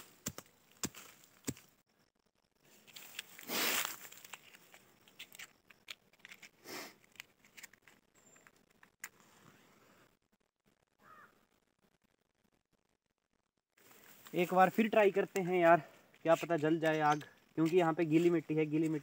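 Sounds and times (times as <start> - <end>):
blade scraping soil: 2.7 - 5.4
sticks and paper rustling: 2.7 - 9.3
match striking hiss: 2.8 - 4.7, 6.6 - 7.1
matchbox handling: 2.8 - 9.2.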